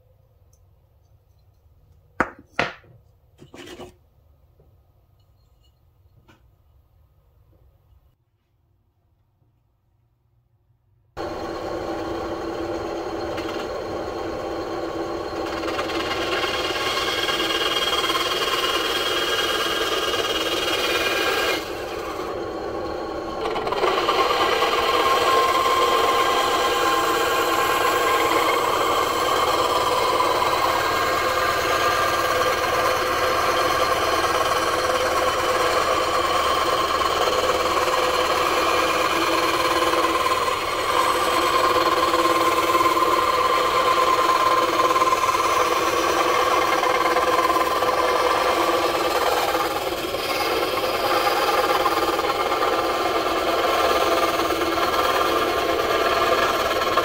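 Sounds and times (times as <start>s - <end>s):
band saw whine: 11.2s - 57.0s
saw blade rasping in wood: 13.0s - 57.0s.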